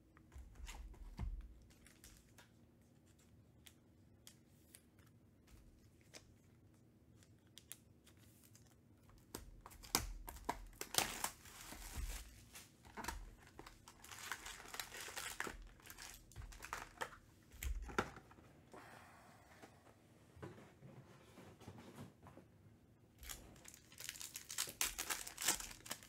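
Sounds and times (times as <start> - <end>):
plastic wrap tearing and crinkling: 9.4 - 17.9, 23.2 - 26.0.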